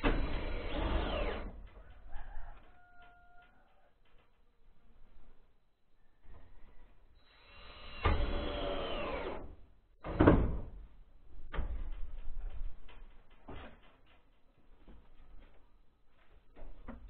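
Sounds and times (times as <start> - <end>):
power drill driving screws: 0.0 - 1.6, 7.2 - 10.4.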